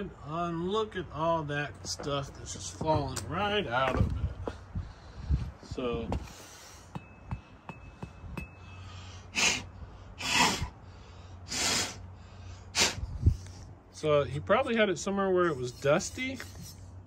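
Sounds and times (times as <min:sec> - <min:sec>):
man blowing puffs of breath: 0:06.2 - 0:07.6, 0:08.5 - 0:13.8.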